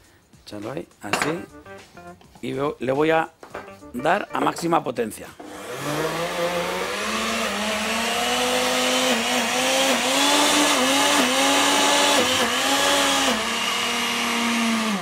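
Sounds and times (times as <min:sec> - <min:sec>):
blender motor whining: 0:05.4 - 0:15.0.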